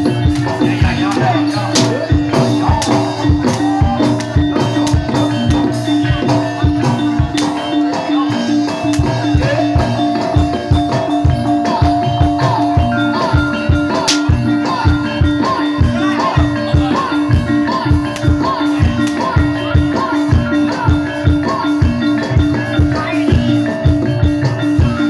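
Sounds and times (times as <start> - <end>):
drum strokes: 0.0 - 19.8
gamelan music: 0.0 - 25.0
ringing tone: 0.9 - 25.0.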